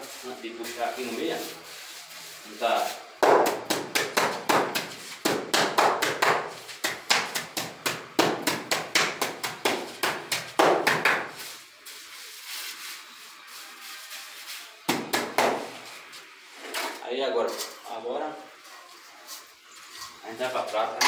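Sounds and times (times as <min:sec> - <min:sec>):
trowel tapping wet mortar: 0:03.2 - 0:11.4.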